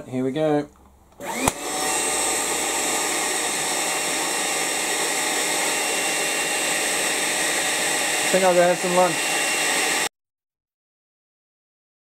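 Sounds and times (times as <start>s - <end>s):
vacuum cleaner motor whine: 1.2s - 10.1s.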